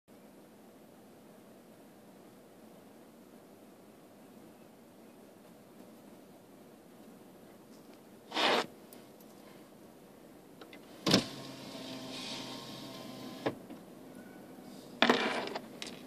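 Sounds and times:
short bursts of noise: 8.3s - 8.8s
small electric motor whirring: 11.0s - 13.5s.

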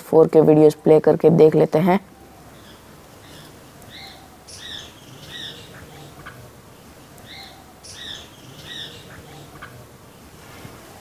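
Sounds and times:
faint background hiss: 0.0s - 11.0s
bird whistling song: 2.6s - 6.4s, 7.2s - 9.7s.

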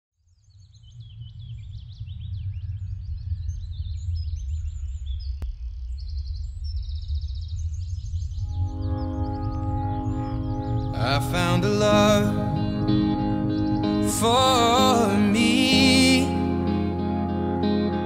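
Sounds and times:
birds chirping and trilling: 0.3s - 16.6s
steady low rumble: 0.9s - 15.6s
music with held notes: 8.5s - 18.0s.

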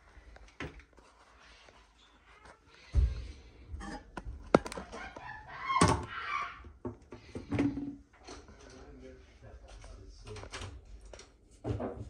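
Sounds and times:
squeaky ceramic scrape: 1.9s - 6.8s.

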